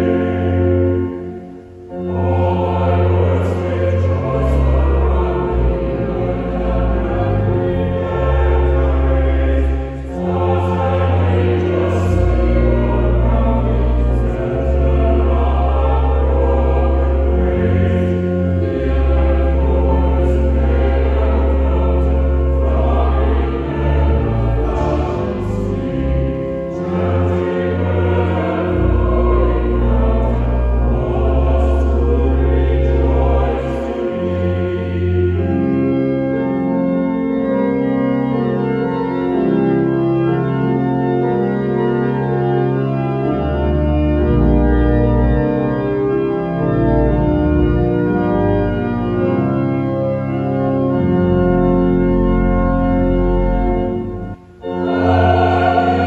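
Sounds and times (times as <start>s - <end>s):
choir singing: 0.0s - 53.2s, 54.0s - 56.0s
organ chords with deep bass: 0.0s - 56.0s.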